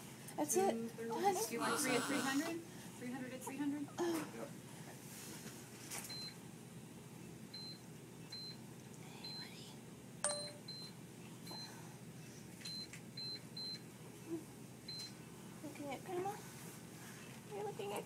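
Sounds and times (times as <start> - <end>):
steady room hum: 0.0 - 18.0.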